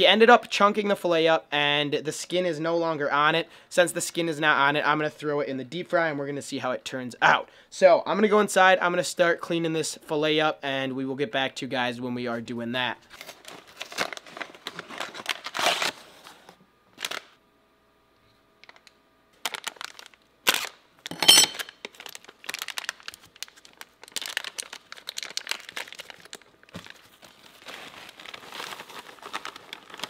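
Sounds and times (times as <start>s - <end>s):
packaging crinkling and rustling: 13.1s - 17.4s, 18.6s - 30.0s
paper pouch ripping: 13.2s - 16.4s, 19.4s - 20.8s, 21.6s - 30.0s.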